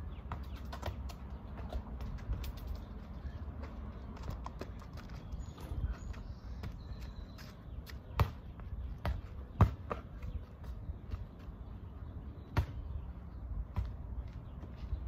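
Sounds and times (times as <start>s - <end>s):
rubber ball bouncing on asphalt: 0.1s - 10.4s.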